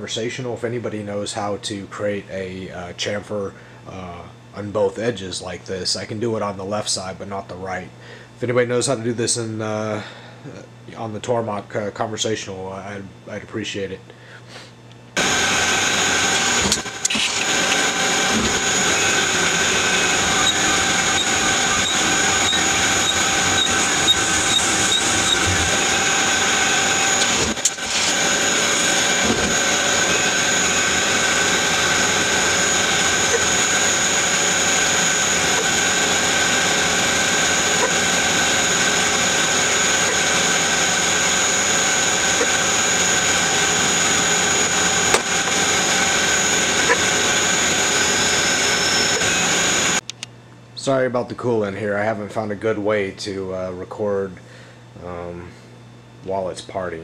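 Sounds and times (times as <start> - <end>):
lathe machine whine: 15.2 - 50.0.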